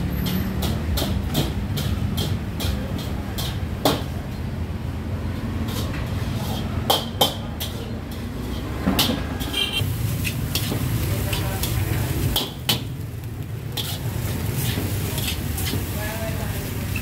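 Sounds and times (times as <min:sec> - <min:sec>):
metal spatula scraping a wok: 0:05.4 - 0:06.9, 0:07.6 - 0:12.6, 0:13.6 - 0:17.0.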